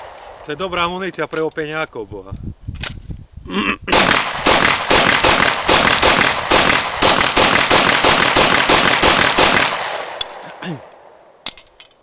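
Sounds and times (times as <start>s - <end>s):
pistol shots: 3.9s - 10.4s.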